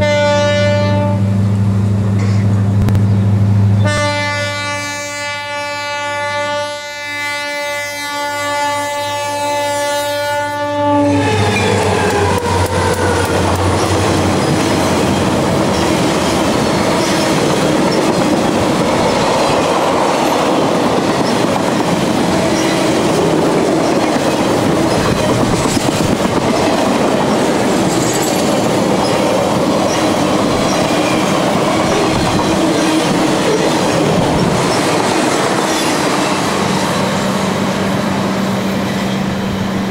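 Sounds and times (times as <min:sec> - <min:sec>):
locomotive air horn: 0:00.0 - 0:01.4, 0:03.8 - 0:13.4
train wheels on rails: 0:09.6 - 0:39.9
clickety-clack over rail joints: 0:11.6 - 0:37.5.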